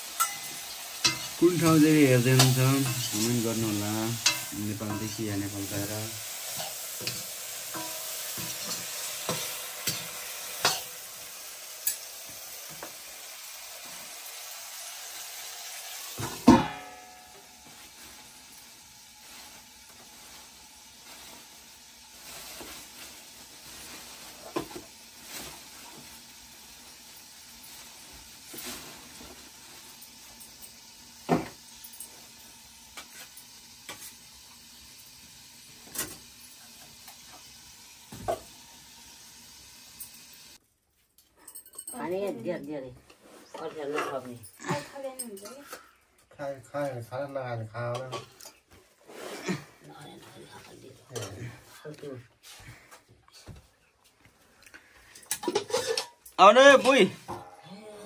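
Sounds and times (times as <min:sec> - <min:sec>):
beans sizzling in a wok: 0:00.0 - 0:40.7, 0:41.9 - 0:58.0
metal lid clanking onto wok: 0:00.1 - 0:01.4
metal ladle scraping pan: 0:00.1 - 0:11.0, 0:55.4 - 0:56.2.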